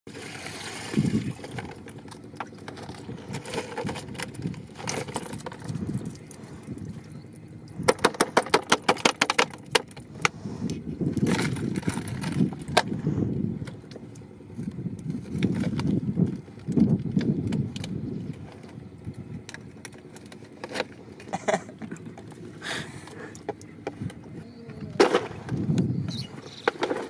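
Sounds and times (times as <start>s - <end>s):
water pouring and splashing: 0.1s - 2.0s.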